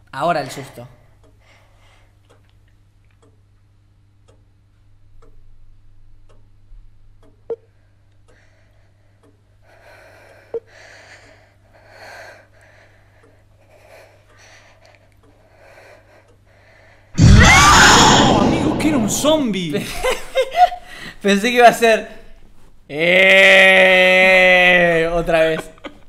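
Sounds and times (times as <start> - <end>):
clock ticking: 3.2 - 3.4, 4.2 - 4.5, 6.2 - 6.5, 7.1 - 8.4
woman breathing: 8.3 - 17.2
low hum: 17.2 - 20.2.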